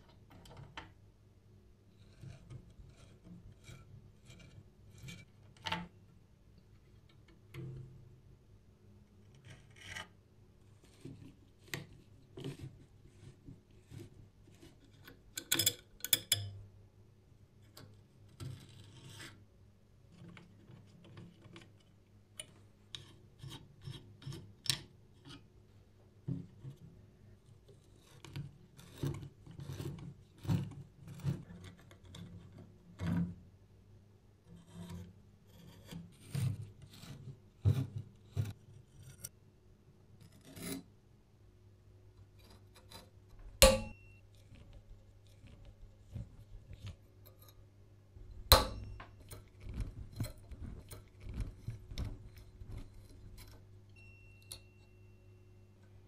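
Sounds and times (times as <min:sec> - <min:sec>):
screwdriver clicking and scraping metal: 0:14.5 - 0:16.5, 0:42.4 - 0:47.6, 0:48.3 - 0:53.7.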